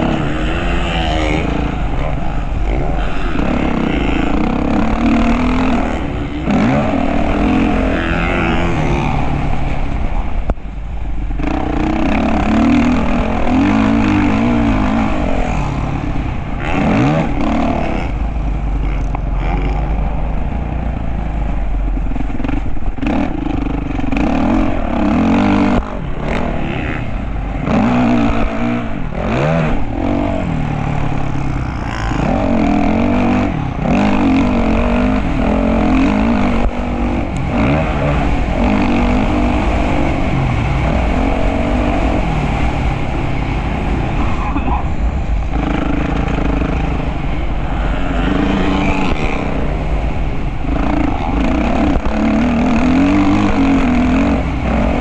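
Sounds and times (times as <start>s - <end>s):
dirt bike engine revving: 0.0s - 55.0s
steady low rumble: 0.0s - 55.0s.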